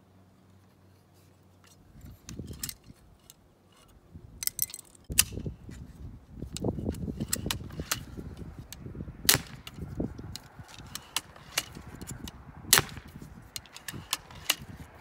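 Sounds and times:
crossbow handling clicks: 0:01.6 - 0:05.8, 0:06.5 - 0:08.8, 0:09.4 - 0:14.8.

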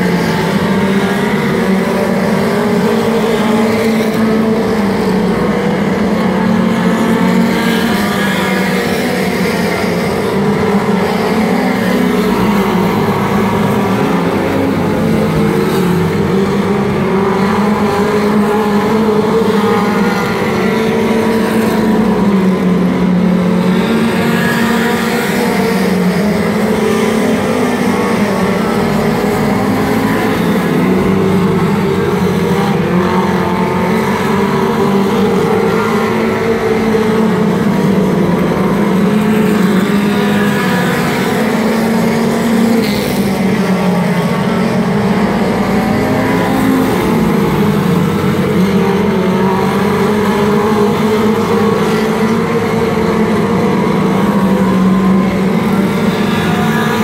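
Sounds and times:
race car engines revving: 0:00.0 - 0:57.0.

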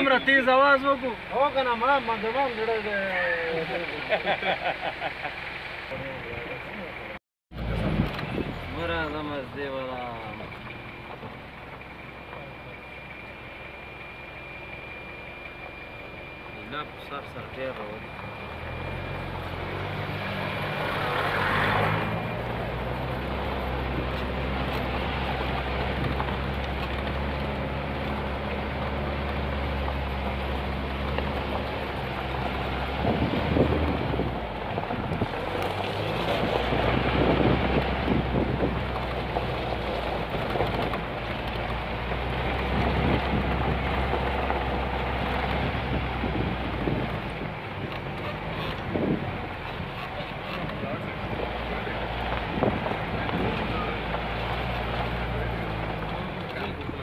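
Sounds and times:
road and wind noise: 0:00.0 - 0:57.0
vehicle engine running: 0:00.0 - 0:57.0
wind buffeting microphone: 0:32.9 - 0:41.2, 0:42.6 - 0:49.9, 0:52.3 - 0:53.9.

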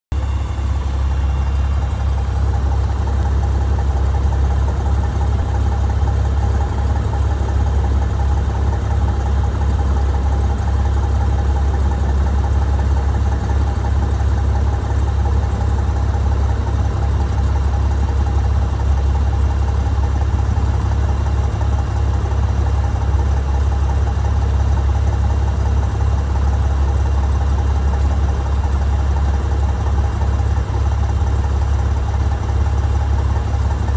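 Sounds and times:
thin steady whine: 0:00.1 - 0:05.8
aircraft engine drone: 0:00.1 - 0:33.9.

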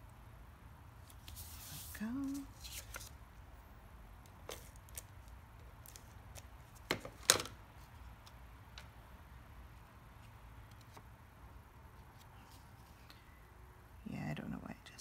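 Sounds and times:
paper handling: 0:01.0 - 0:03.2, 0:04.3 - 0:07.6.

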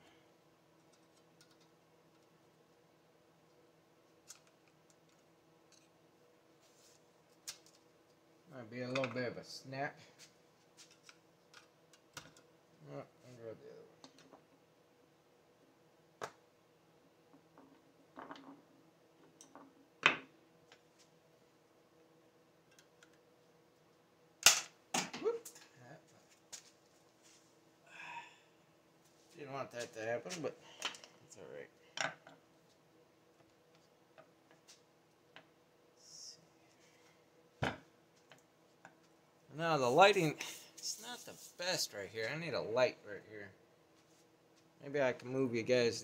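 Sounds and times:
faint clicks of parts: 0:00.8 - 0:02.4, 0:03.4 - 0:06.0, 0:07.3 - 0:08.2, 0:10.8 - 0:12.5, 0:22.6 - 0:23.3.

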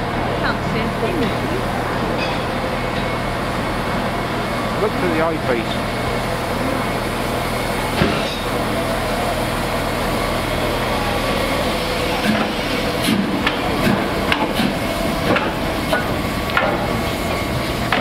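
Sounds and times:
steam locomotive rolling past: 0:00.0 - 0:18.0
steam hissing: 0:03.8 - 0:18.0.

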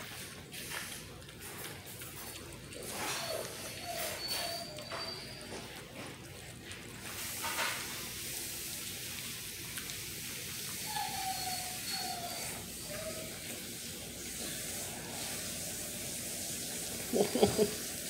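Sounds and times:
puppies smacking and lapping food: 0:00.0 - 0:18.0
puppy whimpers: 0:02.7 - 0:06.0, 0:10.8 - 0:13.6.

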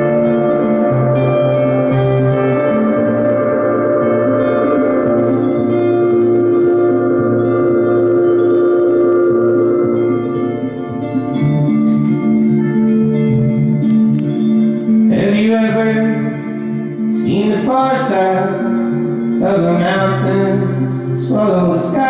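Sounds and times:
electric guitar chords ringing: 0:00.0 - 0:22.0
man singing: 0:15.1 - 0:22.0.

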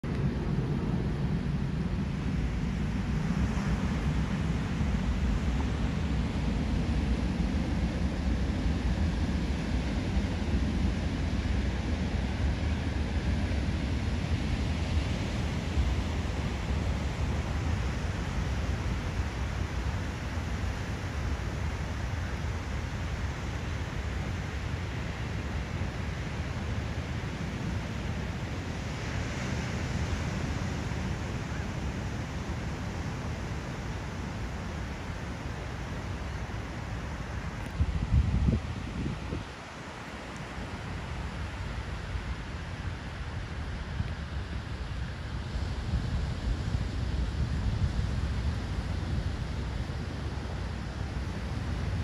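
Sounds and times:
wind rumble on microphone: 0:00.0 - 0:52.0
wind buffeting microphone: 0:27.0 - 0:52.0.

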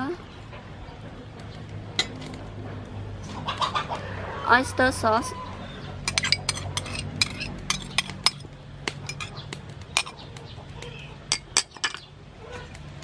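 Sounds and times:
metal spoon clinking on ceramic bowl: 0:06.1 - 0:08.4, 0:09.1 - 0:09.3.

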